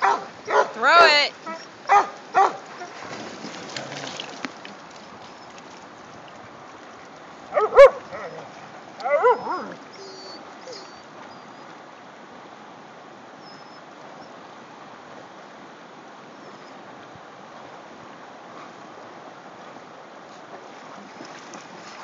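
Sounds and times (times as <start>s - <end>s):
dog barking: 0.0s - 0.8s, 1.5s - 2.9s, 7.5s - 8.4s, 9.0s - 9.7s
flowing river water: 0.0s - 22.0s.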